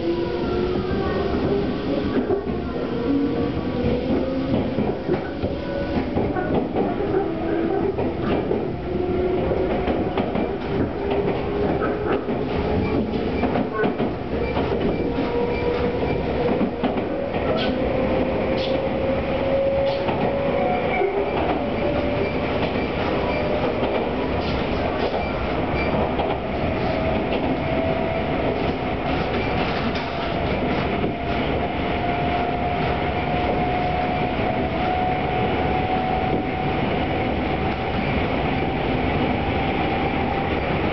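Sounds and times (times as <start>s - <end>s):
train running rumble: 0.0s - 40.9s
rail-joint clicks: 3.4s - 34.0s.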